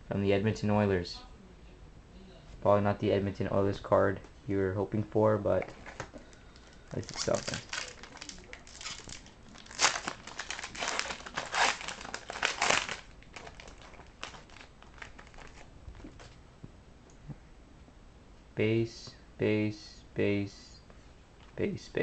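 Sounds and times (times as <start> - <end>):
cards rustling and clicking: 5.7 - 16.4
foil wrapper tearing and crinkling: 6.6 - 15.7.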